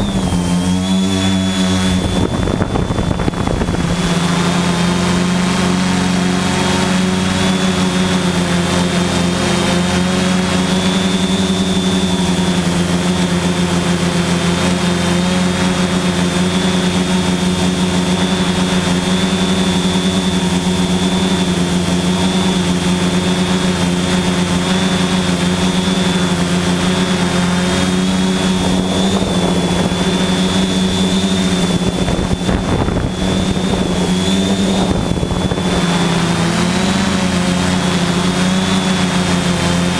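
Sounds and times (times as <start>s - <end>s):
drone motors humming: 0.0s - 39.9s
high propeller whine: 0.0s - 39.9s.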